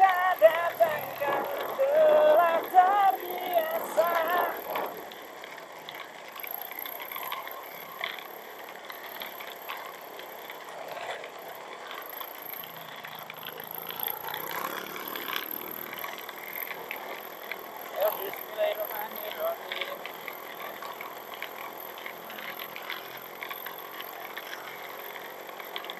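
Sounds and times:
song with vocals: 0.0s - 4.9s
wind and riding noise: 0.0s - 25.9s.

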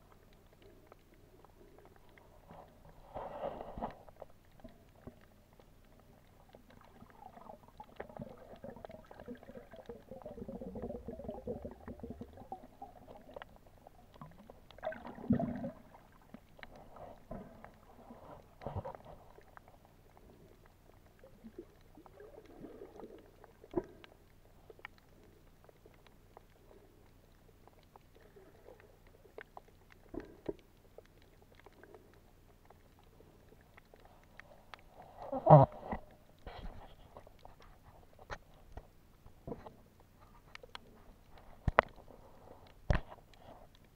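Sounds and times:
underwater gurgling and bubbling: 0.9s - 25.9s.

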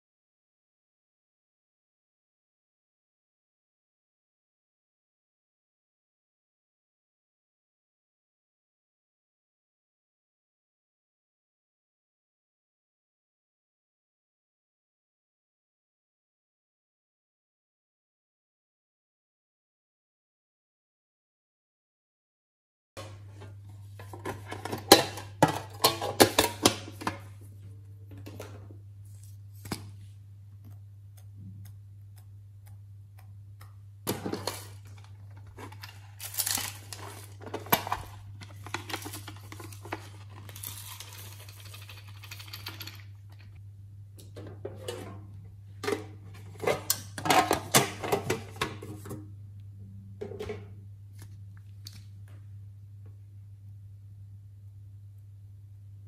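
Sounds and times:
steady low hum: 23.0s - 56.0s.

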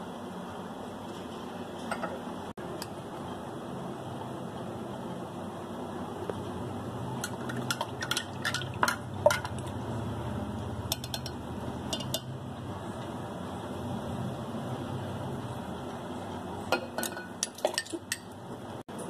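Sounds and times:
spoon and glass dishes clinking: 16.7s - 18.3s.

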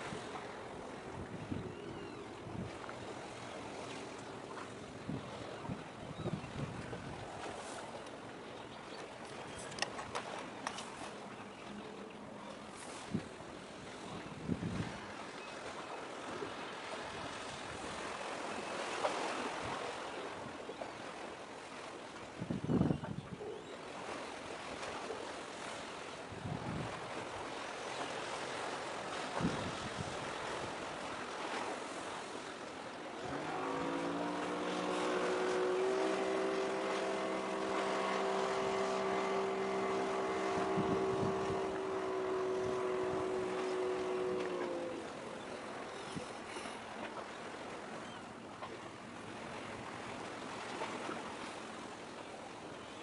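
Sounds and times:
wind on microphone: 0.0s - 4.0s, 4.8s - 7.8s, 12.8s - 15.1s, 22.3s - 23.5s, 26.3s - 27.5s, 29.1s - 31.0s, 33.2s - 46.6s
light surf: 0.0s - 53.0s
small waves lapping on concrete: 0.0s - 53.0s
wave splash: 0.0s - 53.0s
ship's horn blast: 33.1s - 47.7s.

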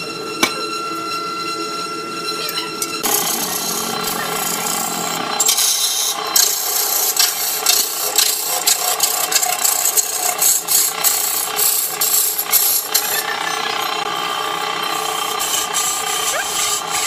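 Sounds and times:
lathe motor hum: 0.0s - 17.0s
chisel scraping spinning wood: 2.9s - 14.1s, 14.8s - 17.0s.

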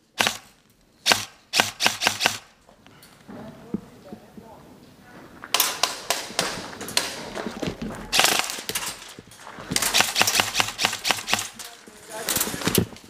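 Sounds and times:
airsoft gunfire: 0.1s - 2.5s, 8.1s - 8.8s, 9.8s - 11.6s.

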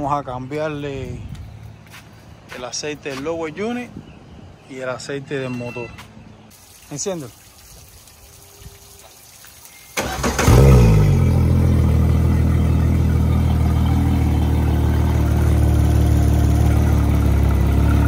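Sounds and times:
outboard motor starting and idling: 10.0s - 18.0s.

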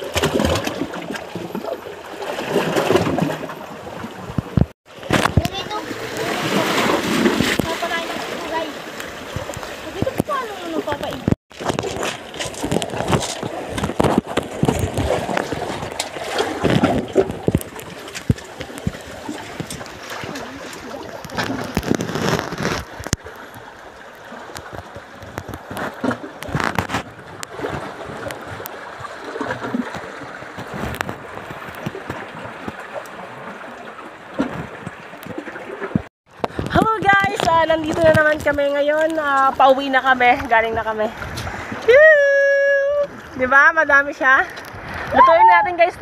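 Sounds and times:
seawater sloshing in rock crevice: 0.0s - 46.0s
sharp knocks and scrapes: 9.3s - 23.2s, 25.3s - 27.1s.

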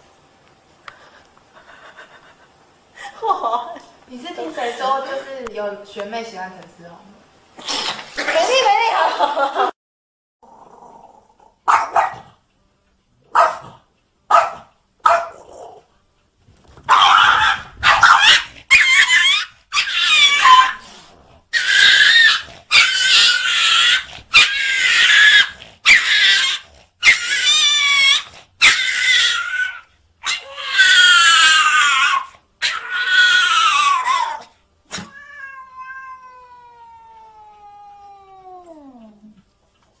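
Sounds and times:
cat yowling: 16.9s - 20.8s, 21.5s - 39.2s.

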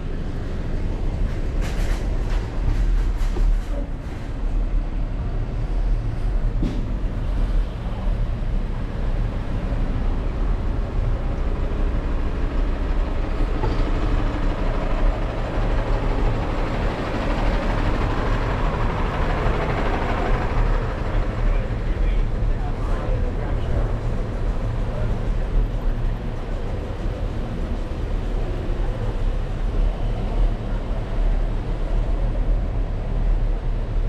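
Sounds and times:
street traffic rumble: 0.0s - 34.0s
truck diesel engine running: 9.7s - 32.6s.

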